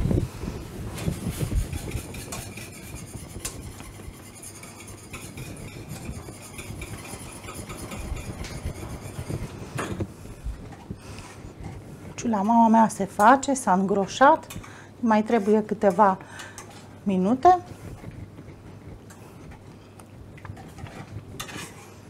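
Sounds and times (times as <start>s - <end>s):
whisk scraping metal pan: 1.0s - 9.6s.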